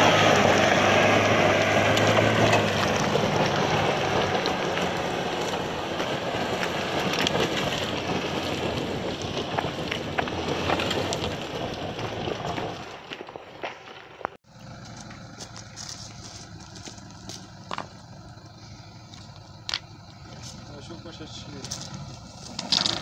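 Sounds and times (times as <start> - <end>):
engine hum: 0.0 - 23.0
gravel and stones clattering: 1.4 - 23.0
tyres spinning on loose rocks: 1.7 - 18.2, 21.5 - 23.0.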